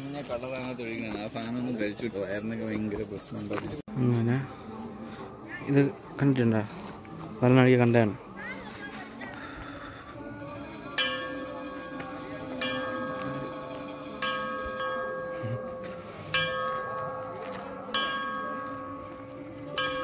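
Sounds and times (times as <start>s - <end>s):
large bell tolling: 11.0s - 20.0s.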